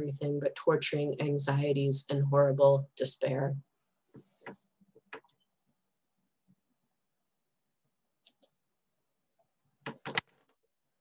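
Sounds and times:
computer mouse clicking: 8.2s - 8.6s, 9.9s - 10.3s.

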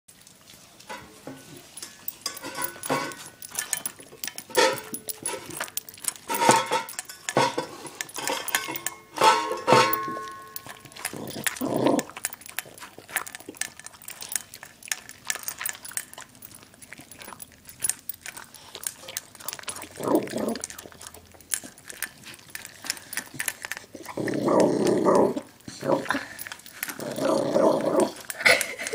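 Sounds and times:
dog chewing from metal bowl: 0.2s - 28.9s
dog growling: 9.7s - 13.4s, 19.0s - 21.3s, 22.5s - 28.9s.

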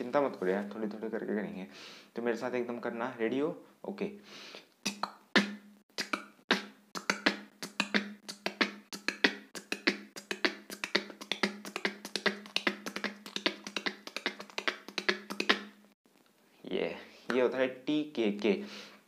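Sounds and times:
beatboxing mouth clicks: 4.6s - 15.8s.

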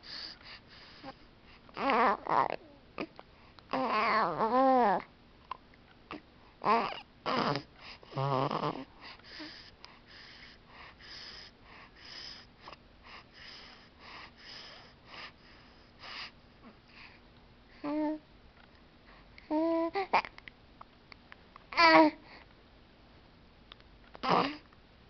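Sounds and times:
baby cooing and grunting: 1.8s - 3.2s, 3.8s - 5.1s, 6.1s - 8.9s, 21.8s - 22.2s, 24.2s - 24.6s
baby snuffly wheezy breathing: 7.3s - 17.2s.

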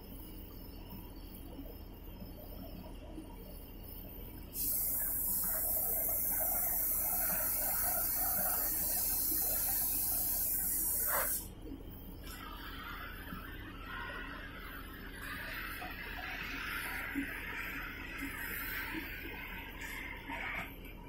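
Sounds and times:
cutting torch hissing: 4.6s - 11.5s.

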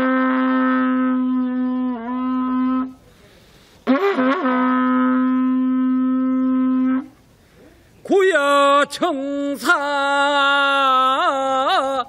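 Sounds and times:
horn trumpet blasts: 0.0s - 3.2s, 3.8s - 7.2s.

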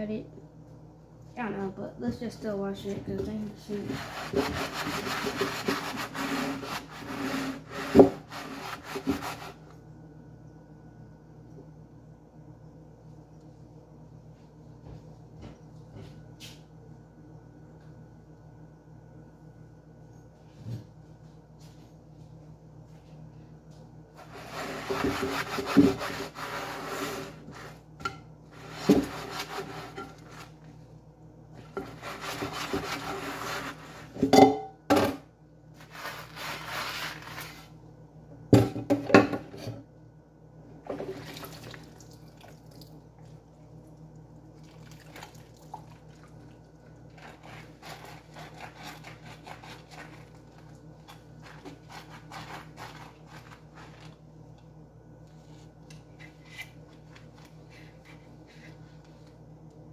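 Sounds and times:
sponge scrubbing a glass lid: 3.7s - 9.6s
water running in sink: 40.8s - 49.1s.

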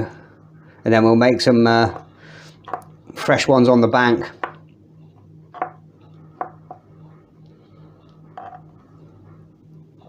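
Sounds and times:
faint low hum: 0.0s - 10.0s.

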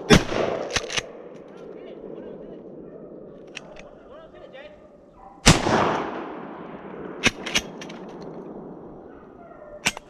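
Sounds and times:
sharp gunshot cracks: 0.0s - 1.2s, 5.4s - 8.7s
shotgun blast with echo: 5.4s - 7.8s.

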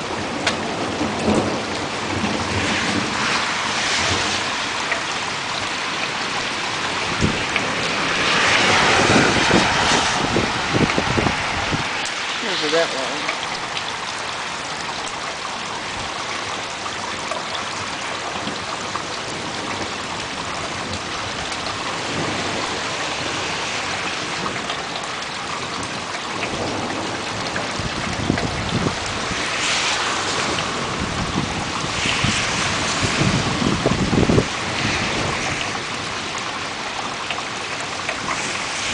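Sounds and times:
thunder rumbling: 0.0s - 5.7s, 6.3s - 13.0s, 18.0s - 36.4s
heavy rain hissing: 0.0s - 38.9s.

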